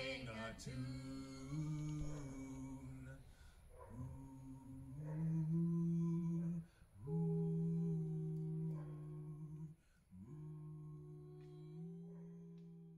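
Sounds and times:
person humming low notes: 0:04.0 - 0:12.9.

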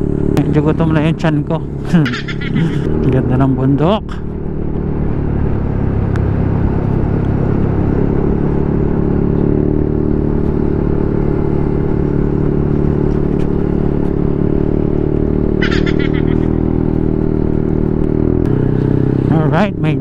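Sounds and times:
motorcycle engine running: 0:00.0 - 0:20.0.

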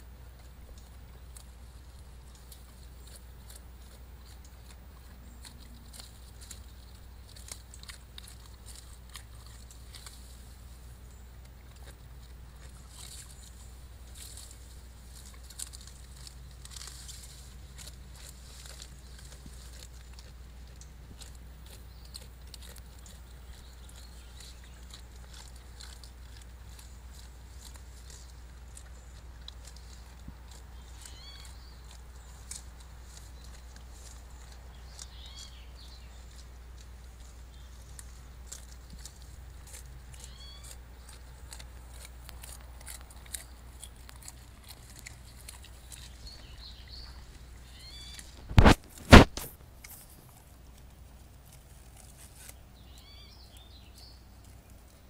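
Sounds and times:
animals rustling through undergrowth: 0:00.0 - 0:55.0
steady low hum: 0:00.0 - 0:55.0
small clicks and crackles: 0:00.3 - 0:10.5, 0:11.1 - 0:53.1
bird chirping: 0:21.6 - 0:30.1, 0:30.7 - 0:36.5, 0:37.2 - 0:41.7, 0:42.8 - 0:49.2, 0:52.4 - 0:54.8.

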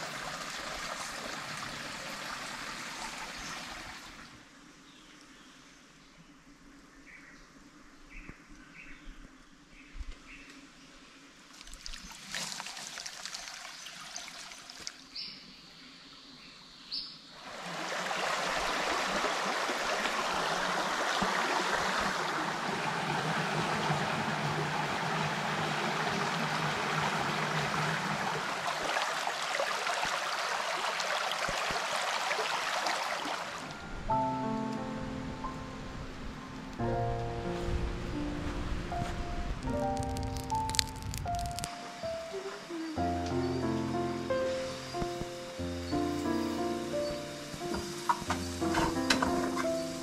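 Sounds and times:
rushing water: 0:00.0 - 0:04.5, 0:11.5 - 0:15.3, 0:17.3 - 0:34.1
music: 0:33.7 - 0:50.0.

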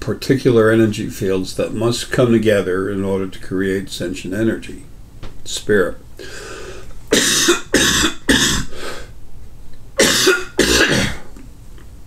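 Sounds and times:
man coughing: 0:07.1 - 0:08.7, 0:10.0 - 0:11.3.

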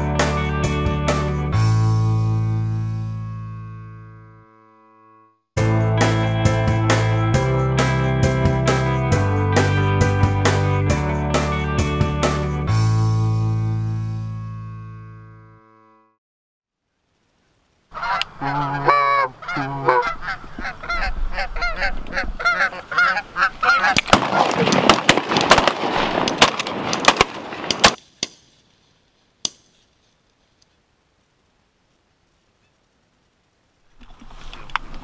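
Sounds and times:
geese honking: 0:17.9 - 0:24.6
sharp crack: 0:23.8 - 0:30.0.

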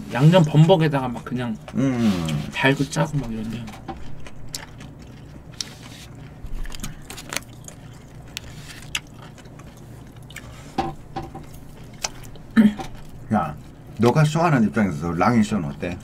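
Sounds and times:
person chewing food: 0:00.4 - 0:14.4.

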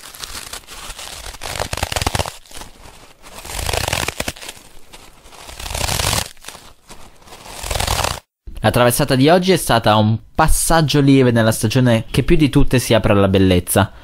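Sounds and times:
crunching crinkling crackles: 0:00.0 - 0:08.3.

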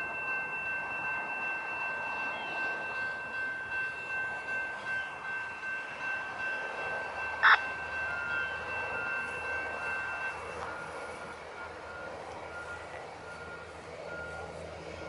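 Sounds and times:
high ringing tone: 0:00.3 - 0:15.0
faint short beeps: 0:07.4 - 0:07.6.

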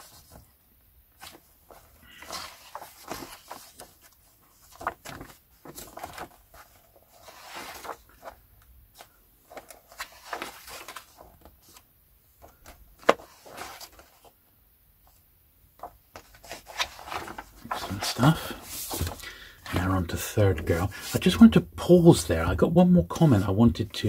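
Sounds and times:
paper rustling: 0:00.0 - 0:14.4, 0:15.8 - 0:22.5, 0:23.1 - 0:24.0.

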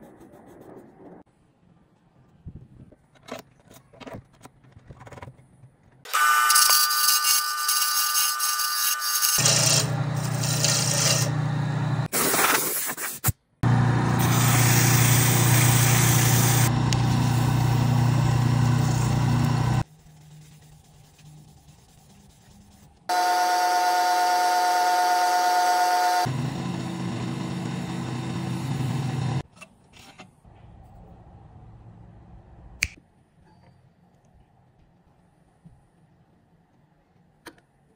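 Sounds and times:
tool cutting wood on lathe: 0:06.1 - 0:12.1, 0:13.7 - 0:19.8, 0:23.1 - 0:29.4
wood lathe motor hum: 0:07.6 - 0:12.1, 0:13.6 - 0:19.8, 0:23.1 - 0:29.4
sandpaper rubbing: 0:19.8 - 0:23.0.

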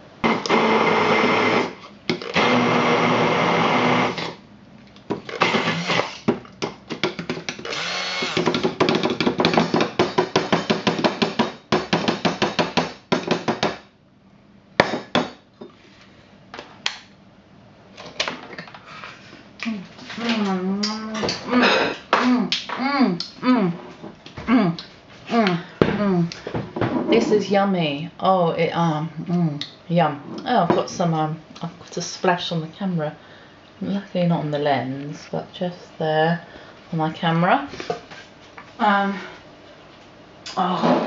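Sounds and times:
stick blender blending: 0:00.2 - 0:04.4, 0:05.3 - 0:06.3, 0:07.5 - 0:10.1.

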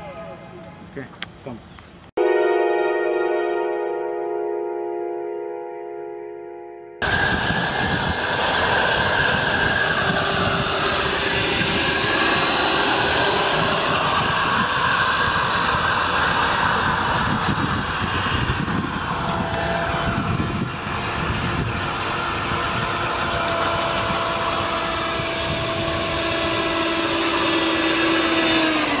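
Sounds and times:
electric fans whining: 0:07.0 - 0:29.0
rushing noise: 0:07.0 - 0:29.0.

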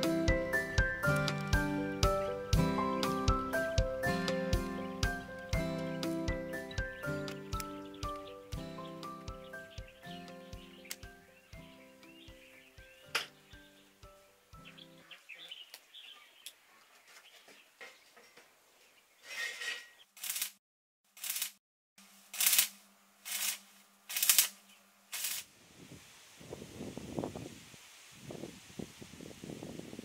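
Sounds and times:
arc welding hissing bursts: 0:25.1 - 0:25.5.

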